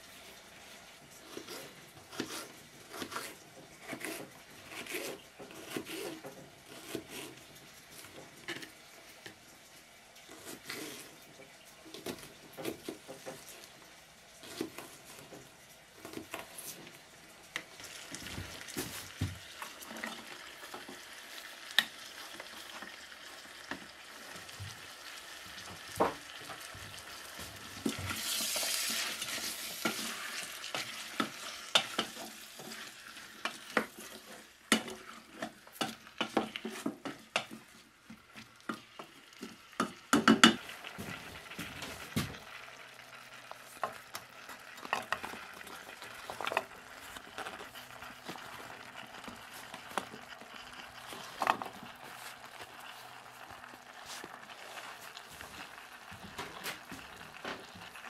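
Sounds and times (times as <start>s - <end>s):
food sizzling in a pot: 0.0s - 58.0s
wooden spoon scraping a pot: 0.1s - 9.4s, 10.2s - 13.8s, 26.6s - 39.6s, 43.4s - 57.9s.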